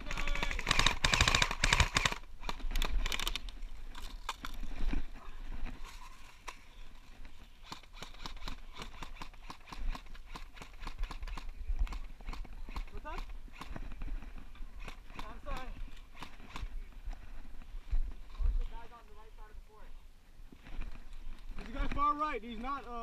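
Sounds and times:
airsoft rifles firing bursts: 0.0 - 3.4, 7.6 - 13.9.

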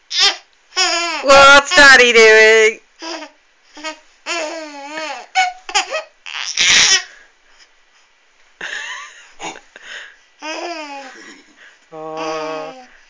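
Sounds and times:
infant babbling and laughing: 3.0 - 7.1, 12.0 - 13.0.

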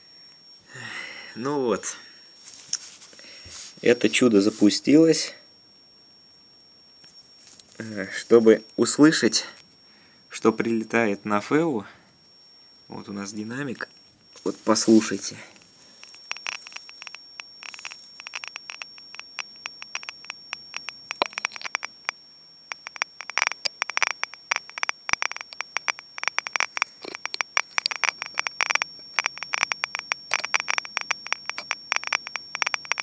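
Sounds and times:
detector loudspeaker clicking: 16.0 - 33.0.

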